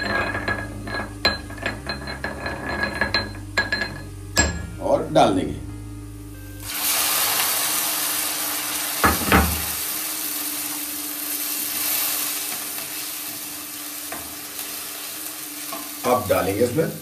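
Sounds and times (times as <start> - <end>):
water sizzling in hot oil: 6.6 - 17.0.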